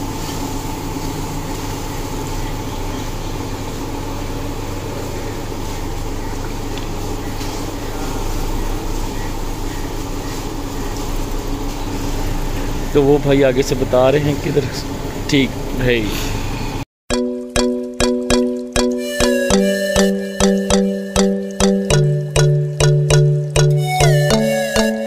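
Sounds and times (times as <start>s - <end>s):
low mechanical hum: 0.0s - 16.8s.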